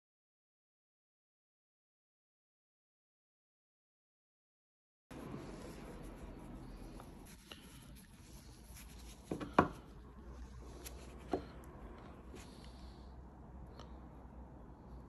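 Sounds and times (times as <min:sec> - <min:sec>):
faint rubbing: 0:05.1 - 0:13.0.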